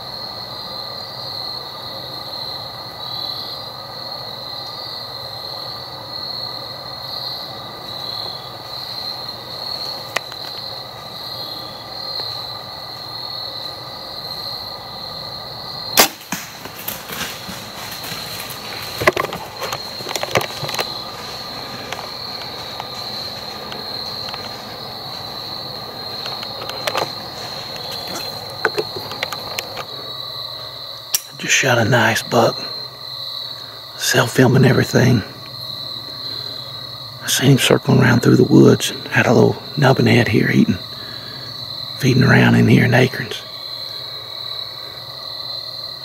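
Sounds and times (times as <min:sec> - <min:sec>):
insects droning: 0:00.0 - 0:46.0
bow shot crack: 0:16.0 - 0:17.8
rustling and snapping in leaves: 0:16.0 - 0:24.6.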